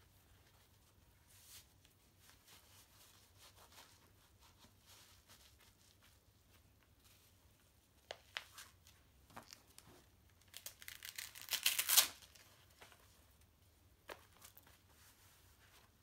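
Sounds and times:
velcro strap ripping open: 10.4s - 12.4s.

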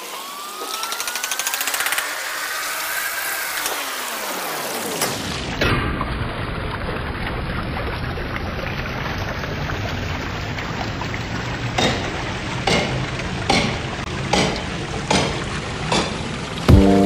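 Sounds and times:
water churning and bubbling: 0.0s - 17.0s
sharp knocks: 11.8s - 16.2s.

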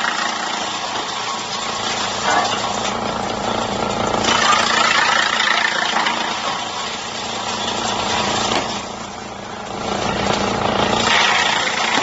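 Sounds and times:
wood chipper running: 0.0s - 12.0s
diesel engine hum: 6.5s - 11.2s.

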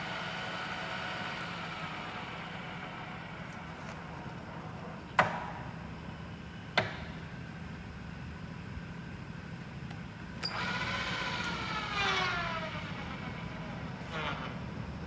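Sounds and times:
pillar drill humming: 9.9s - 15.0s.

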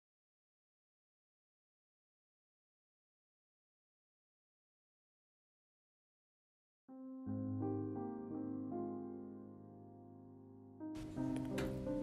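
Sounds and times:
soft slow keyboard music: 6.9s - 12.0s.

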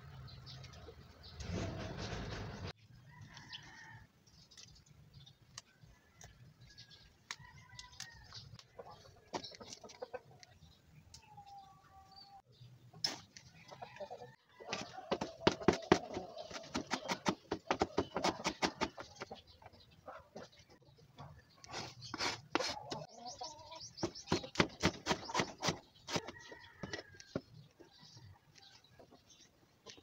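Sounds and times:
chickens clucking faintly: 5.6s - 30.0s.

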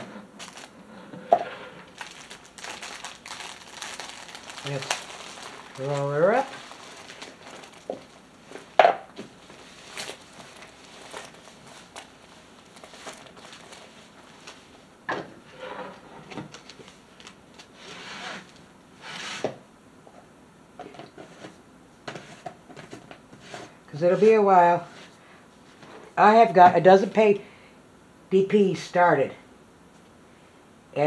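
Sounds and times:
canvas rustling and rubbing: 1.4s - 14.8s.

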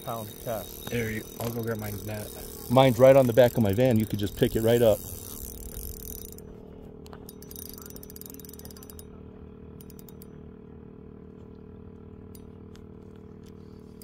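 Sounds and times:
fishing reel clicks: 0.0s - 6.5s, 7.2s - 9.1s, 9.8s - 10.4s
fishing reel gear whir: 0.0s - 14.0s.

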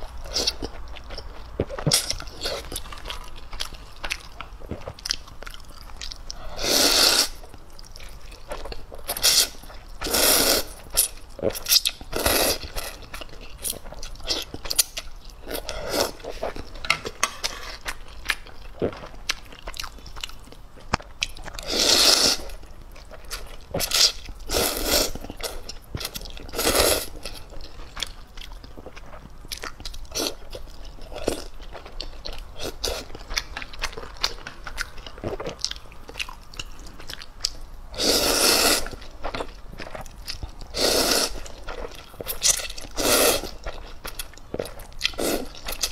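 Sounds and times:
slurping noodles: 6.6s - 7.4s, 38.0s - 38.9s, 40.8s - 41.4s.

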